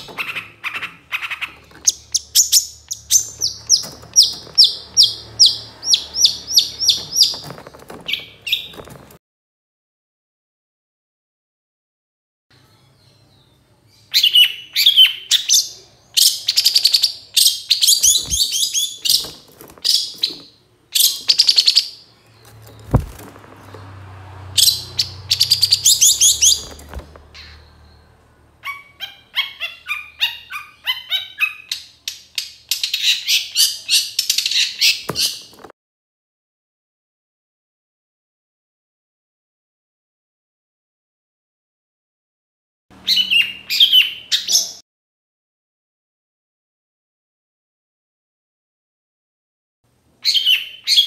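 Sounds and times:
dull knocks: 0:22.7 - 0:24.0.

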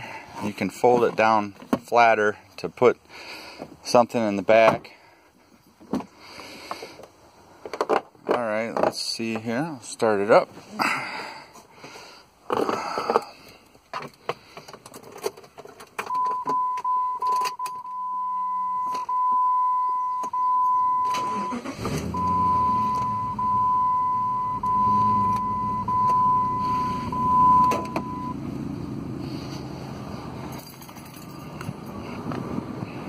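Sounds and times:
car engine cranking and idling: 0:12.4 - 0:33.0
high warning tone: 0:16.1 - 0:28.4.

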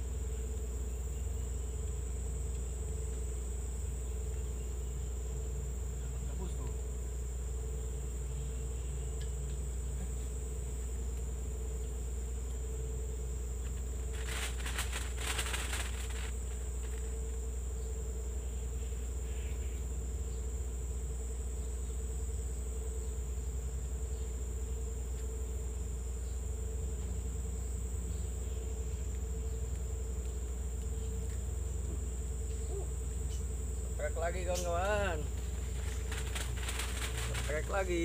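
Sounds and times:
insects chirring: 0:00.0 - 0:38.0
low hum: 0:00.0 - 0:38.0
crackling burst: 0:14.1 - 0:17.0, 0:35.4 - 0:37.7.

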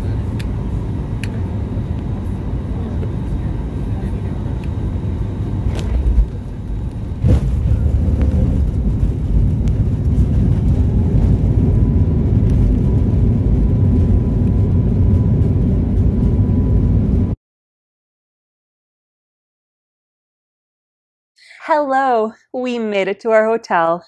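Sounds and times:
airliner rumble on runway: 0:00.0 - 0:17.4.

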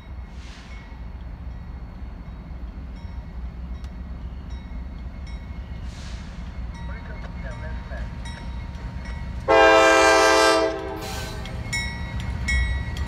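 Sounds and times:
diesel locomotive engines rumbling: 0:00.0 - 0:13.0.

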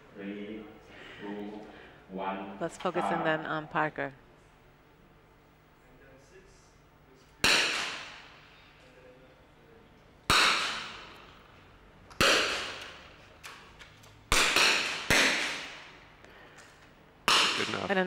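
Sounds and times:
rifle shots echoing: 0:07.4 - 0:08.4, 0:12.2 - 0:13.1.

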